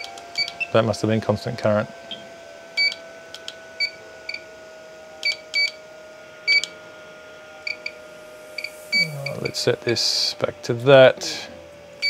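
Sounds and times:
faint steady hum: 0.0 - 12.0
short high electronic beeps: 7.6 - 9.6.

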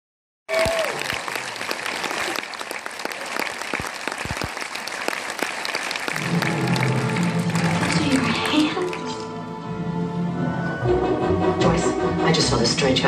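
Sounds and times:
audience applauding: 0.5 - 9.4
music: 6.1 - 13.0.

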